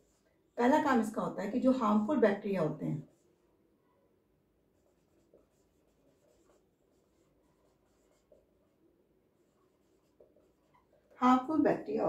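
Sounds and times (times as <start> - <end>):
marker squeaking on whiteboard: 4.8 - 8.5.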